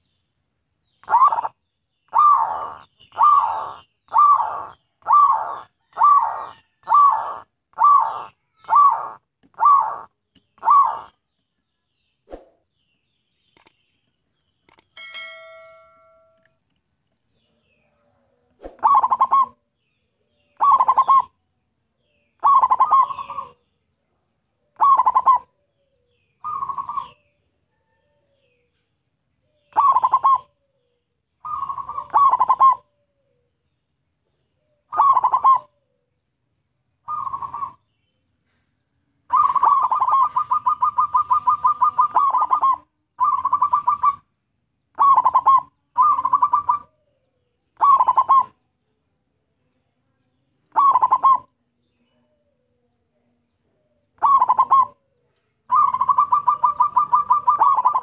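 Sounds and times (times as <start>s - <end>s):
dove cooing: 1.0s - 11.2s, 17.8s - 19.7s, 20.5s - 21.4s, 22.4s - 23.6s, 24.7s - 28.4s, 29.5s - 33.5s, 34.6s - 36.1s, 37.0s - 37.8s, 39.3s - 44.3s, 44.9s - 48.6s, 50.7s - 51.5s, 54.2s - 58.0s.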